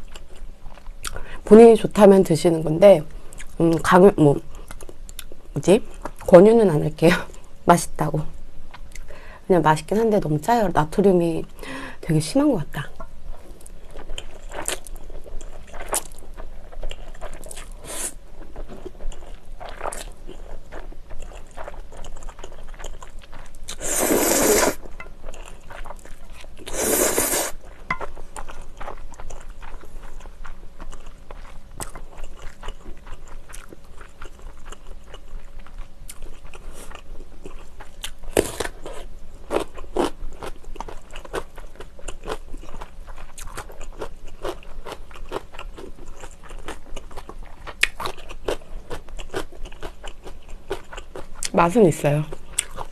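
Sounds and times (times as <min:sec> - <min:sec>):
noodle slurps: 0:23.8 - 0:24.8, 0:26.7 - 0:27.6.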